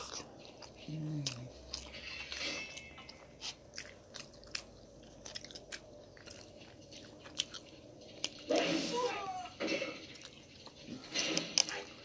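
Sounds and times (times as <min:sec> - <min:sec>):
person chewing wetly: 0:00.0 - 0:08.8.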